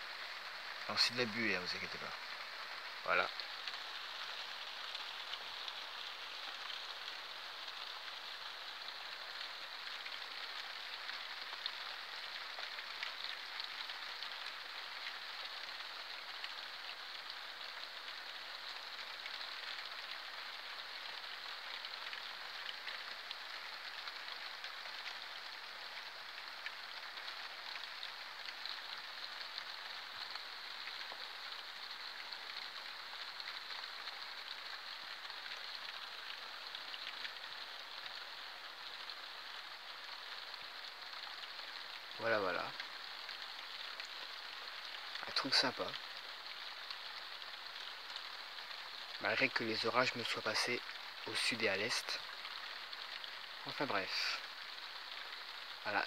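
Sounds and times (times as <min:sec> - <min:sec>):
rain hissing: 0:00.0 - 0:56.0.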